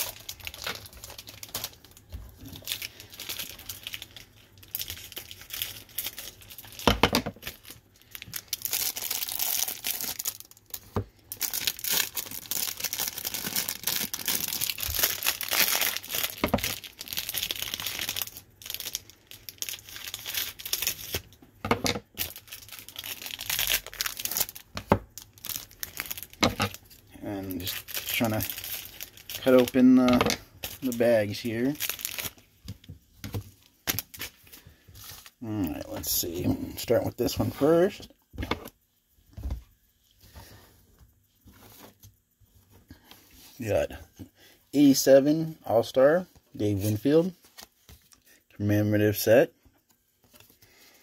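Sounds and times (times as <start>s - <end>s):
plastic wrapper crinkling and tearing: 0.0s - 21.4s, 22.0s - 38.0s.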